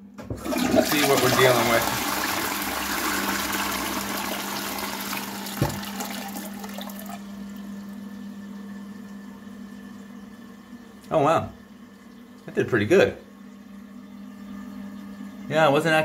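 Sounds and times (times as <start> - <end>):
toilet flushing: 0.2 - 8.2
steady low hum: 5.5 - 16.0
knock: 5.6 - 5.8.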